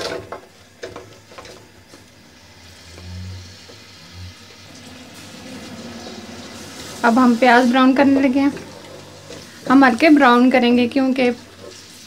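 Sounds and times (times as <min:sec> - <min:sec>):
onions sizzling in oil: 0:00.6 - 0:12.0.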